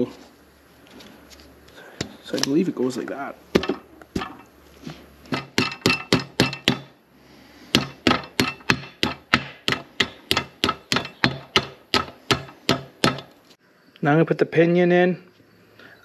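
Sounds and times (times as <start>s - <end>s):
hammer knocking on metal: 5.3s - 6.9s, 7.7s - 13.3s.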